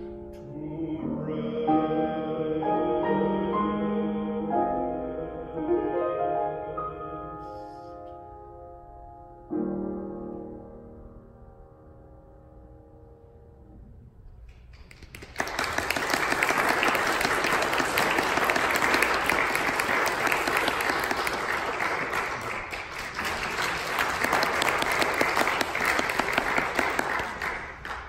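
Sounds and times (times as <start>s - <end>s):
audience applauding: 14.5s - 28.0s.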